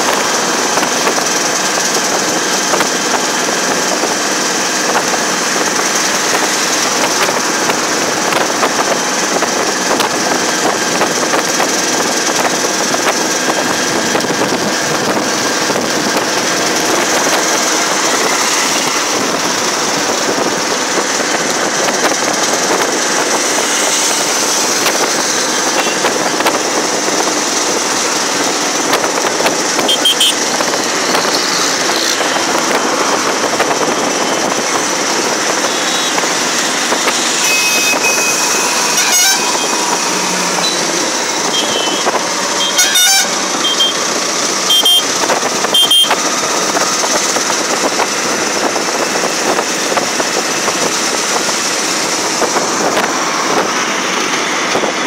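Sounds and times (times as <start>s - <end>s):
auto-rickshaw engine running: 0.0s - 55.0s
wind noise: 0.0s - 55.0s
short horn beeps: 25.8s - 26.1s, 29.8s - 30.4s, 37.4s - 44.0s, 44.7s - 45.1s, 45.7s - 46.2s.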